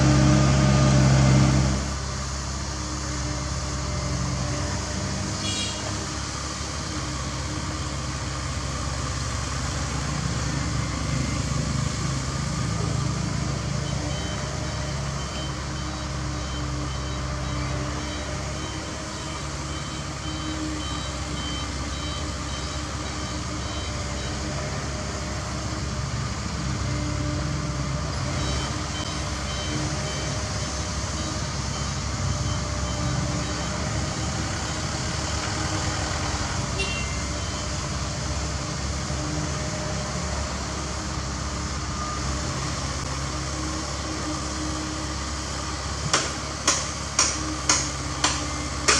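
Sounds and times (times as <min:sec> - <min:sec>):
diesel engines running: 0:00.0 - 0:48.9
reversing alarm beeping: 0:13.4 - 0:24.8, 0:28.2 - 0:35.5, 0:36.8 - 0:38.0.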